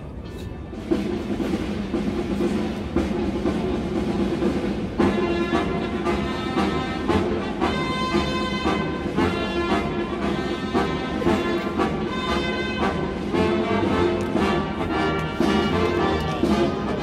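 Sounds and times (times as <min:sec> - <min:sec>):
military band playing: 0:00.0 - 0:17.0
drum beats: 0:00.7 - 0:17.0
brass: 0:03.6 - 0:17.0.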